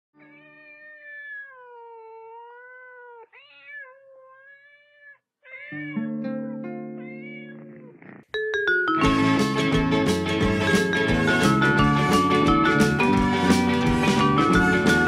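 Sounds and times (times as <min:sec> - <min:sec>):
cat meowing: 0:00.2 - 0:06.2, 0:06.8 - 0:08.3.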